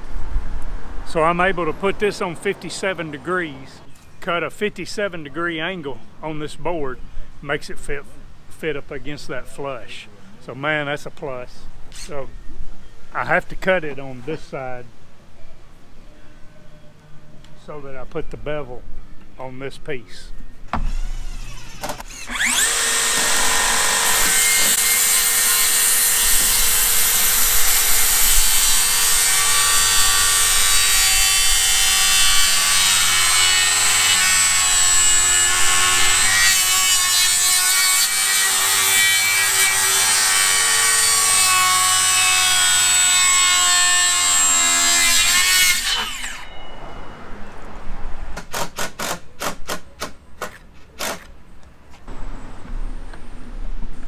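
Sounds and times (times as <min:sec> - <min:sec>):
circular saw cutting wood: 0:20.8 - 0:46.6.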